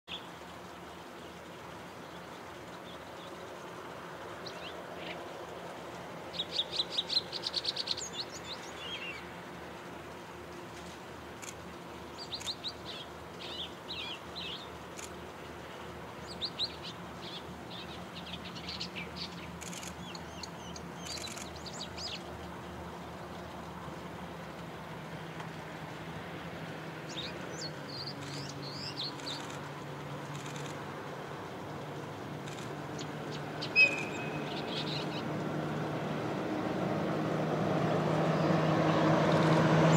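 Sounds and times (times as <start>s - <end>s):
distant diesel locomotive drone: 0.1s - 39.9s
small birds chirping: 6.3s - 9.4s, 11.4s - 24.3s, 27.0s - 35.5s.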